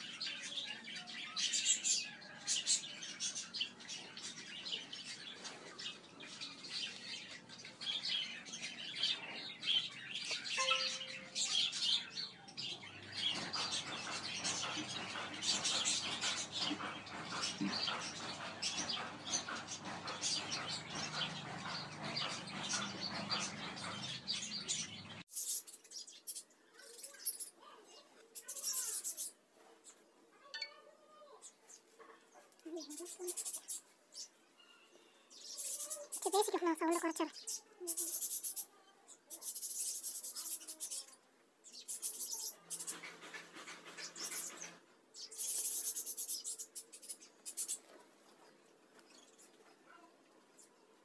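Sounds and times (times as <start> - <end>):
small birds chirping: 0.0 - 51.0.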